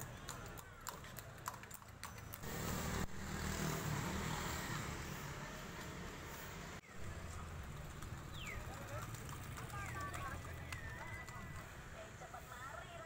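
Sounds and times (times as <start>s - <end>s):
horse hooves on asphalt: 0.0s - 2.6s, 7.4s - 11.8s
motorcycles passing: 2.4s - 12.2s.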